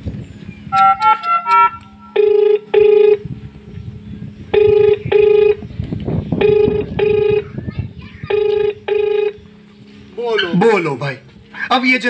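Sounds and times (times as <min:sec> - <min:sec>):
short electronic beeps: 0:00.7 - 0:03.2
telephone ringback tone: 0:00.8 - 0:03.2, 0:04.5 - 0:05.6, 0:06.4 - 0:07.5, 0:08.3 - 0:09.4.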